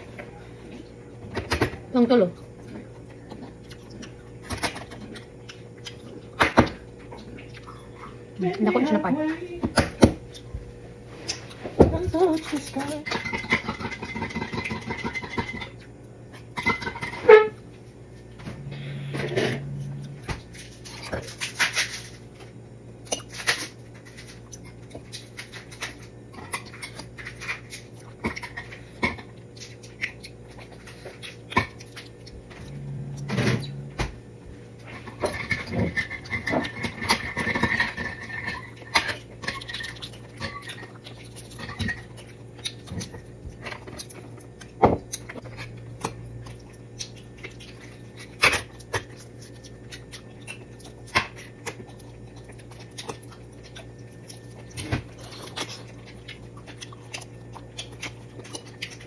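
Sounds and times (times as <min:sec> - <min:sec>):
steady low hum: 0:00.0 - 0:59.0
chewing and mouth noises: 0:02.3 - 0:08.7, 0:23.0 - 0:59.0.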